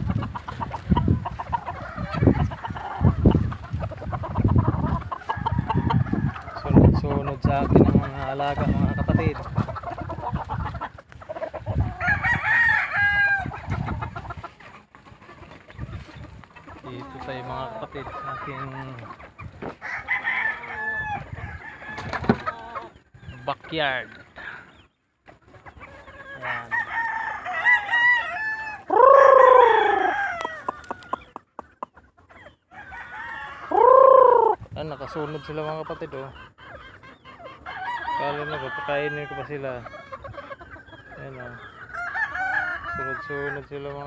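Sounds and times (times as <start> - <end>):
chickens clucking: 0.0 - 44.0
rooster crowing: 12.0 - 13.5, 19.8 - 22.2, 26.4 - 30.7, 32.7 - 34.6, 37.7 - 39.6, 41.9 - 43.7.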